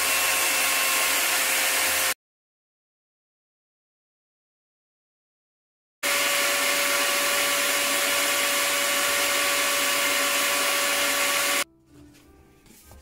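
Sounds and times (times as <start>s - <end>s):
electric drill motor whining: 0.0s - 2.2s, 6.0s - 11.6s.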